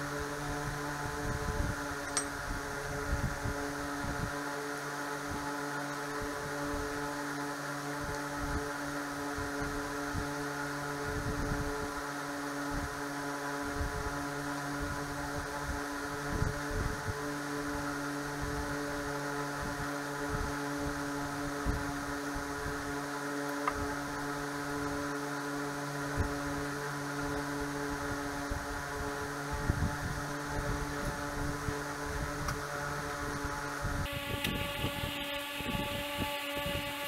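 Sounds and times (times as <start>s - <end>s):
steady mechanical drone: 0.0s - 37.0s.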